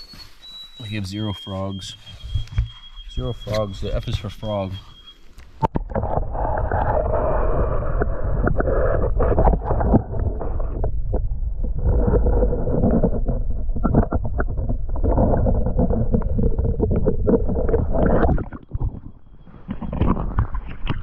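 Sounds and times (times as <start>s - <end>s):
muffled underwater water rumble: 5.6s - 21.0s.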